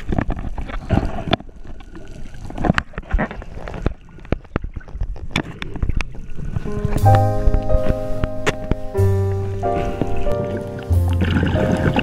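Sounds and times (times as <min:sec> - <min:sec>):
bubbles gurgling underwater: 0:09.7 - 0:12.0.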